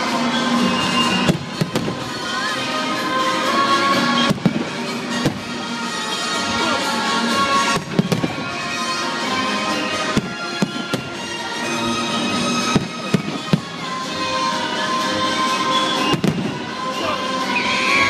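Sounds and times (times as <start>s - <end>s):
background music: 0.0s - 18.0s
fireworks bursting: 0.4s - 2.5s, 4.0s - 6.1s, 7.6s - 9.0s, 9.6s - 18.0s.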